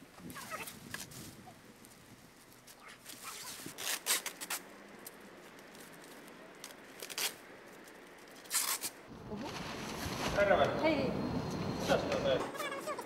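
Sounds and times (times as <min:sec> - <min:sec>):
street traffic noise: 0:00.0 - 0:13.0
plastic sheeting crinkling: 0:00.3 - 0:10.6.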